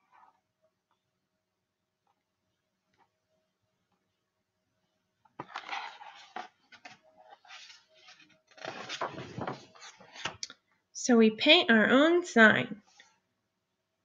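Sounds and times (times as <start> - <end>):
book pages rustling: 5.4 - 10.4.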